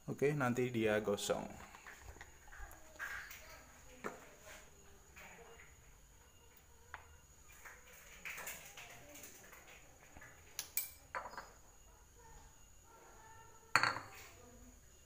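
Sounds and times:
kitchenware clinks and knocks: 1.6s - 4.2s, 10.7s - 11.6s, 13.7s - 14.4s.

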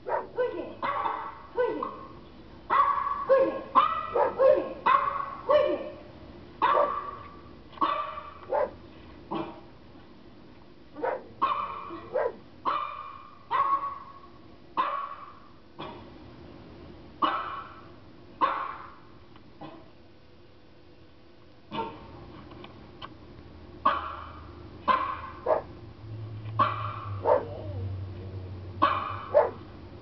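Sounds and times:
dog barking: 0.0s - 6.0s, 6.6s - 8.8s, 11.0s - 14.2s, 14.8s - 15.4s, 17.2s - 17.8s, 18.4s - 19.0s, 21.7s - 22.0s, 23.8s - 25.7s, 26.6s - 27.8s, 28.8s - 29.6s
recorded dog barking: 0.0s - 6.0s, 6.6s - 8.8s, 11.0s - 15.9s, 17.2s - 19.9s, 21.7s - 22.1s, 23.8s - 25.7s, 26.6s - 27.8s, 28.8s - 29.7s.

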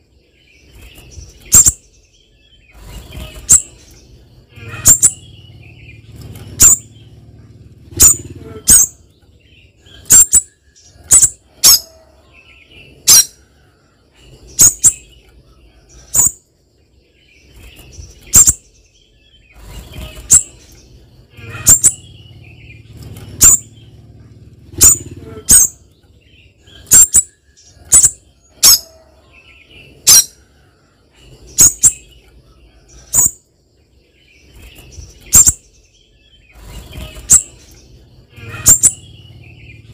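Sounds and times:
faint low rumble: 0.1s - 39.9s
bird calling sharp high notes: 4.5s - 5.2s, 38.3s - 39.1s.

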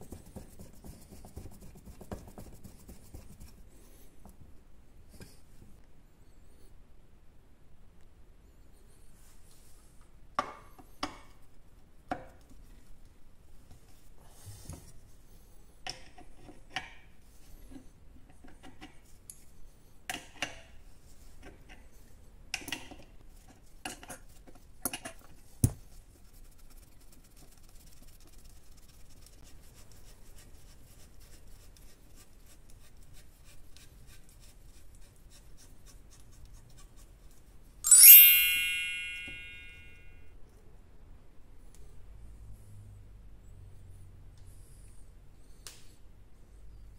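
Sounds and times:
loud ringing chime: 37.9s - 40.0s.

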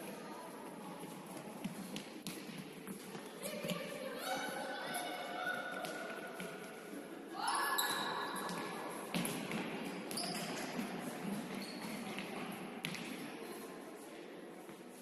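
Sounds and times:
ball kicks echoing in hall: 1.6s - 4.4s, 5.1s - 6.9s, 7.7s - 13.5s.

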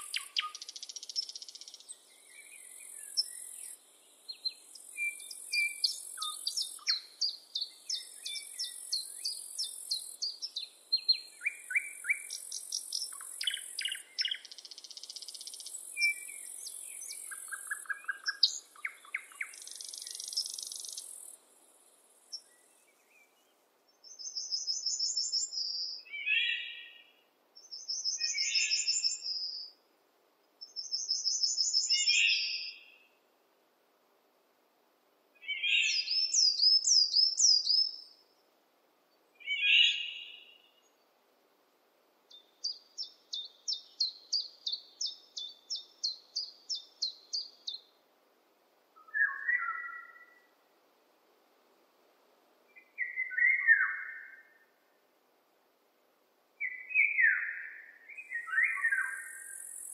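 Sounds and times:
bird singing loud phrase: 0.0s - 21.1s, 24.0s - 29.8s, 30.6s - 33.0s, 35.4s - 38.1s, 39.4s - 41.0s, 42.3s - 47.9s, 49.0s - 50.5s, 52.8s - 54.6s, 56.6s - 59.9s
songbirds chirping and whistling: 0.0s - 21.4s, 22.2s - 29.8s, 30.6s - 33.1s, 35.4s - 38.2s, 39.4s - 41.0s, 42.3s - 48.0s, 49.0s - 50.6s, 52.7s - 54.7s, 56.6s - 59.9s.

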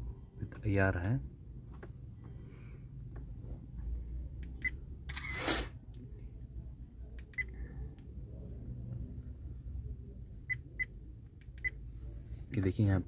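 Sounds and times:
camera shutter sound: 5.1s - 5.5s.

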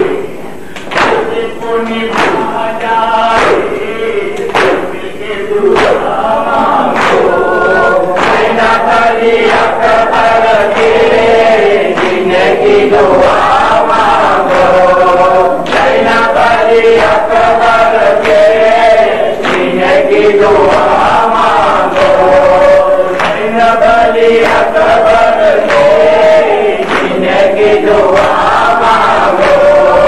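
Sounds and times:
chest-beating slaps: 0.7s - 2.6s, 3.3s - 5.0s, 5.7s - 7.4s
crowd of men singing: 1.0s - 30.0s
man chanting on microphone: 1.1s - 30.0s.

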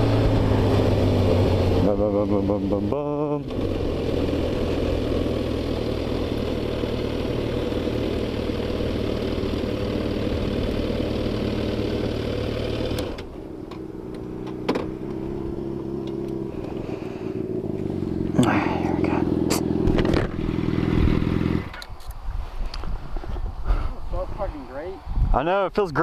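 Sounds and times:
motorcycle engine running: 0.0s - 21.9s
wind noise: 19.8s - 26.0s.

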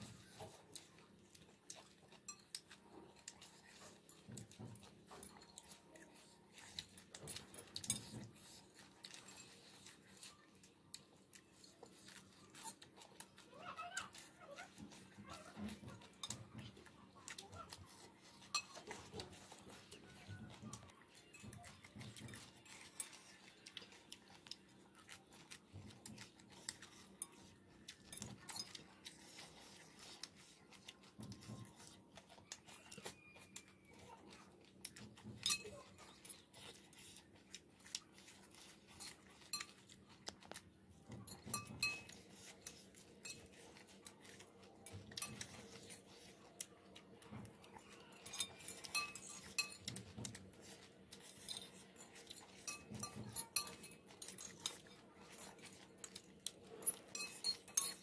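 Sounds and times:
soft chewing: 0.0s - 58.0s
forks clinking on ceramic plates: 18.3s - 23.9s, 35.4s - 36.4s, 41.2s - 46.3s, 48.2s - 58.0s.

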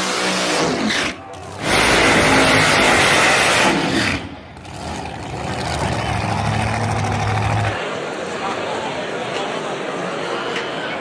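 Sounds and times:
drag car engine at full throttle: 0.0s - 7.8s.

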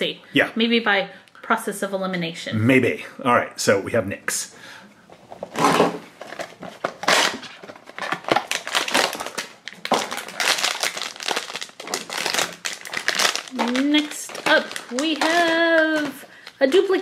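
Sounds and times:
foil packaging crinkling: 5.4s - 17.0s.

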